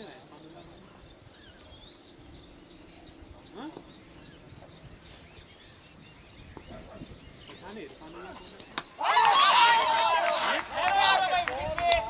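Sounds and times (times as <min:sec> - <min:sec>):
bird chirps: 0:00.0 - 0:09.0
steady high-pitched hiss: 0:00.0 - 0:12.0
distant shout: 0:08.9 - 0:12.0.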